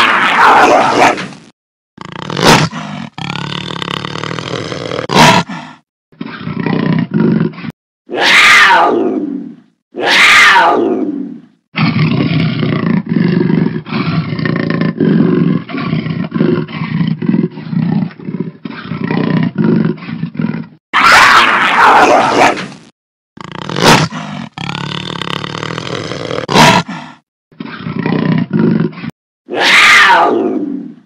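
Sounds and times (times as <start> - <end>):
big cat roaring: 0.0 - 1.3, 2.0 - 22.8, 23.4 - 31.0
big cat rasping grunts: 2.0 - 7.7, 23.4 - 29.1.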